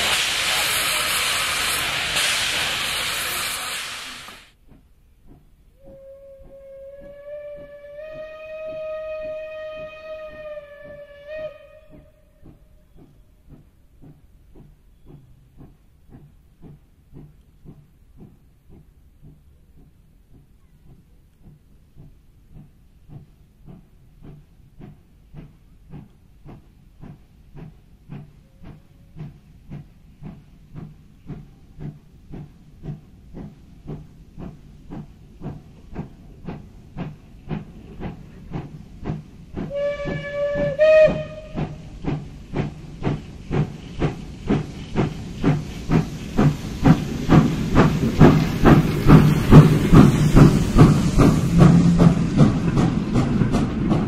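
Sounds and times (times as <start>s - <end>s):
steam hissing: 0.0s - 4.6s, 20.9s - 54.0s
steam locomotive chuffing: 0.0s - 54.0s
steam whistle blast: 5.8s - 12.2s, 39.7s - 41.8s.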